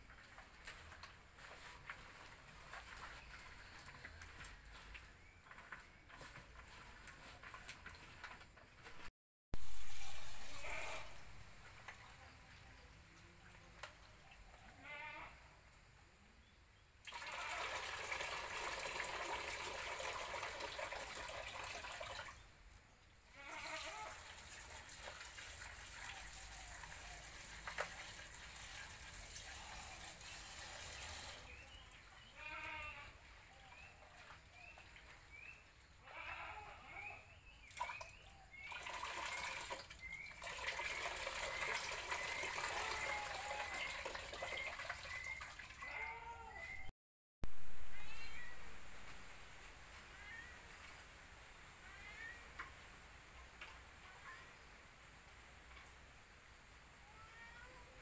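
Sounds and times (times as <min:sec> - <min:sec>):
tap water running into bowl: 0:17.0 - 0:22.4, 0:37.7 - 0:45.8.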